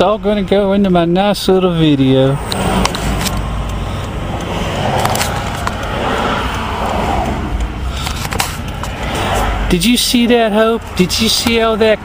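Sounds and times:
engine and tyre rumble: 0.0 - 12.0.

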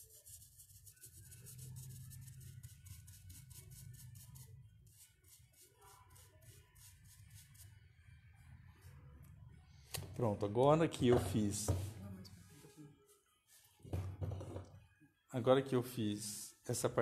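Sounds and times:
paintbrush scratching on wood: 0.0 - 7.8.

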